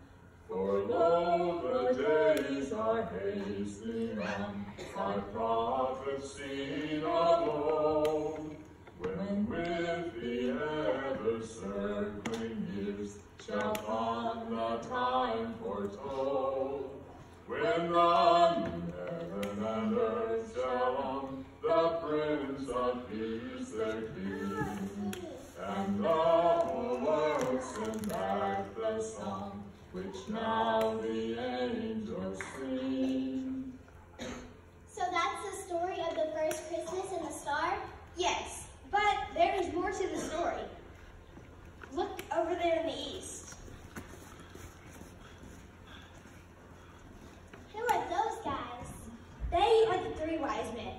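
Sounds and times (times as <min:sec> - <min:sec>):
voices singing held notes: 0:00.2 - 0:34.3.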